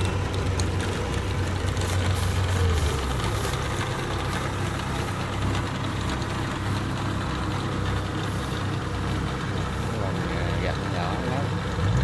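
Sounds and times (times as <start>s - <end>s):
combine harvester diesel engine running: 0.0s - 12.0s.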